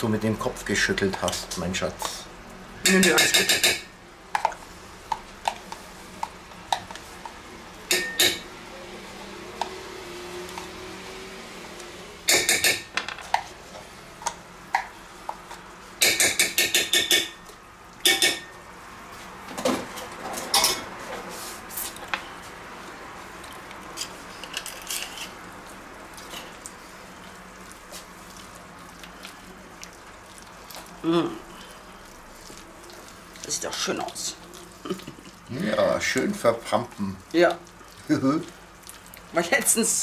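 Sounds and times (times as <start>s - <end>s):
spatula stirring in steel bowl: 26.1s - 40.0s.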